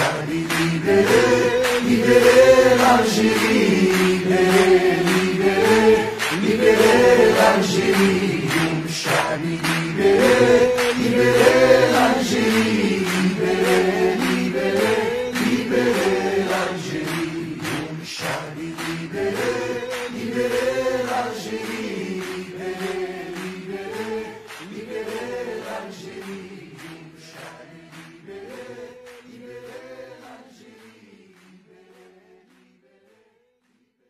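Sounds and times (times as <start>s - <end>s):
male voices singing in chorus: 0.0s - 33.3s
hand claps: 0.0s - 33.8s.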